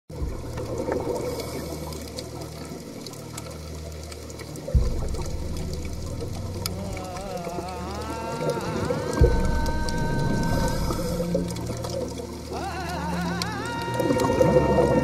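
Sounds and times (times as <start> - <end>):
low sustained drone: 4.6 - 15.0
deep bass hit: 4.8 - 7.6, 9.2 - 12.0.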